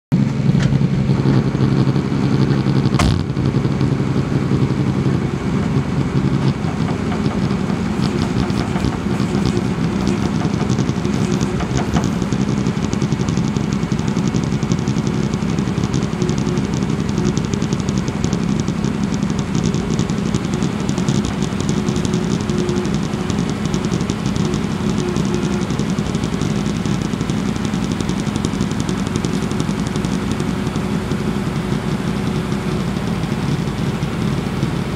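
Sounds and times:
diesel engine running: 0.1 - 34.9
sharp knock: 3.0 - 3.4.

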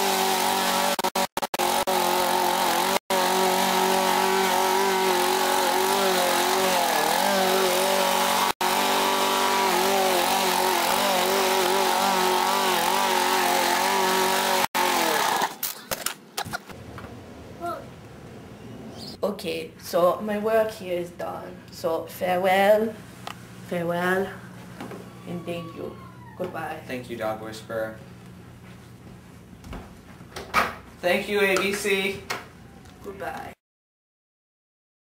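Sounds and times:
lawn mower cutting grass: 0.0 - 15.7.

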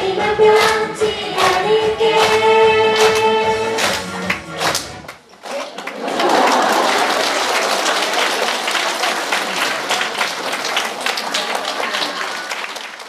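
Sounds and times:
group singing: 0.0 - 4.2
audience applauding: 3.8 - 13.0.

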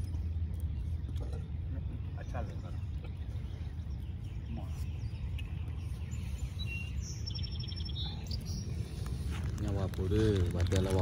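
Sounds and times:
bird chirps: 0.0 - 9.5.

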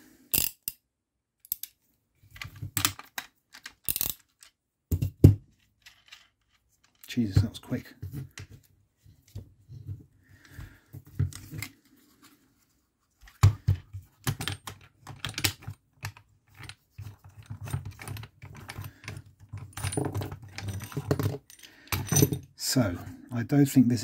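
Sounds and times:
plastic parts clicking: 0.3 - 0.8, 2.4 - 4.6.

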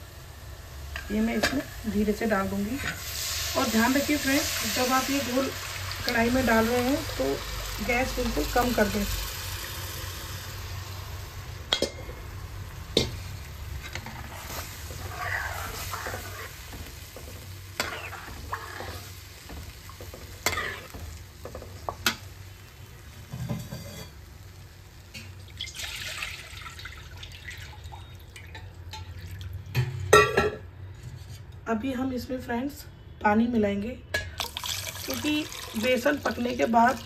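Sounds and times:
batter sizzling: 0.0 - 27.8, 34.4 - 37.0
spoon scraping metal pan: 13.8 - 16.6, 17.8 - 19.1, 20.4 - 21.0, 23.3 - 24.2.

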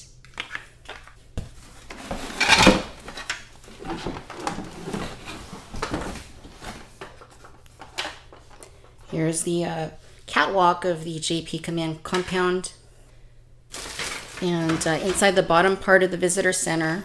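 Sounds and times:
plastic pieces clattering: 13.7 - 15.3.

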